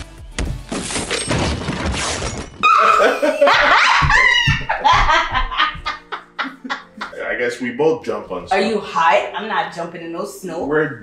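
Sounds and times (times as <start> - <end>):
man and woman shrieking: 2.6 - 4.8
man and woman laughing: 2.6 - 7.3.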